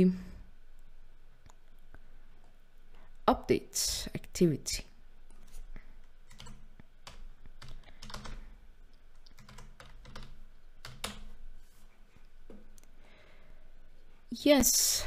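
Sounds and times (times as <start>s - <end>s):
keyboard typing: 6.0s - 11.4s.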